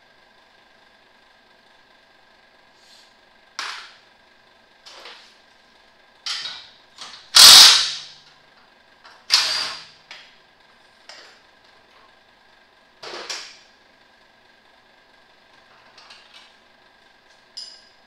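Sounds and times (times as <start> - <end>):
faint steady hum: 0.0 - 18.0
mechanic's tool bursts and clanks: 6.3 - 8.2, 9.2 - 10.0.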